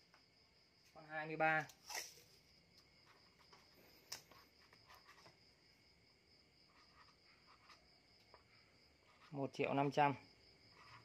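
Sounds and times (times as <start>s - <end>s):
marker writing on paper: 3.0s - 5.4s, 6.6s - 9.5s, 10.7s - 11.0s.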